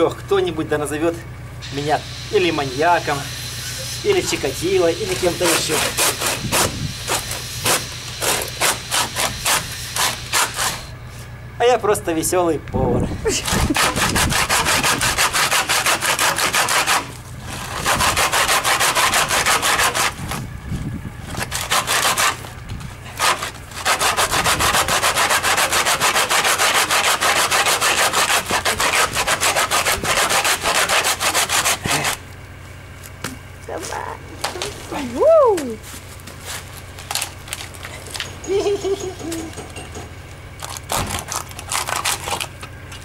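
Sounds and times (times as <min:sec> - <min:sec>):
hand saw cutting bone: 0:05.1 - 0:10.9, 0:13.3 - 0:20.3, 0:21.3 - 0:22.5, 0:23.1 - 0:32.2, 0:40.6 - 0:42.5.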